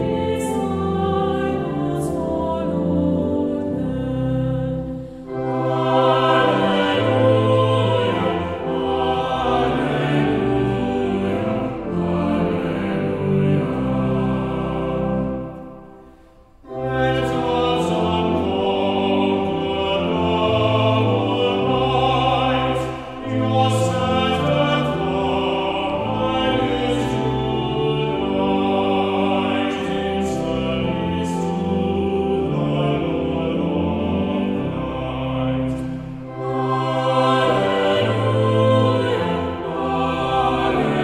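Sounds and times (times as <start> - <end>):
choir singing a hymn: 0.0 - 41.0
instrumental accompaniment: 0.0 - 41.0.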